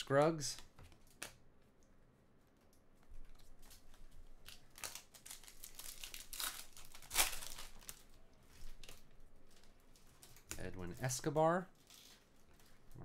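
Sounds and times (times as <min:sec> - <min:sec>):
foil wrapper tearing and crinkling: 0:03.4 - 0:08.2.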